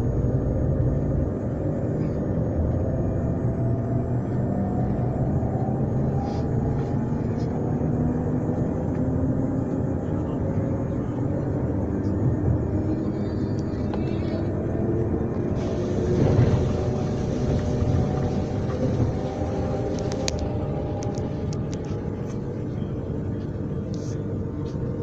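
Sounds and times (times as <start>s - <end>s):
train rumbling: 0.0s - 25.0s.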